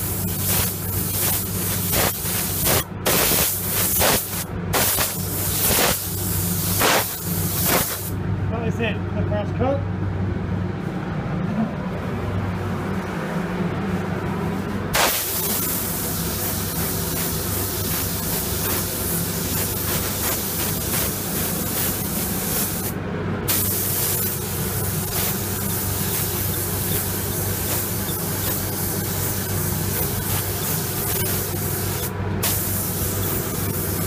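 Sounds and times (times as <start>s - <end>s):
spray gun hissing: 0.0s - 8.2s, 14.9s - 34.0s
steady low hum: 0.0s - 34.0s.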